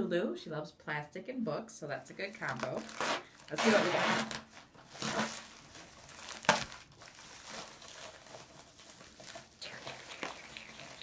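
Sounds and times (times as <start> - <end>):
plastic mailer tearing: 2.4 - 9.5
plastic crinkling: 2.4 - 11.0.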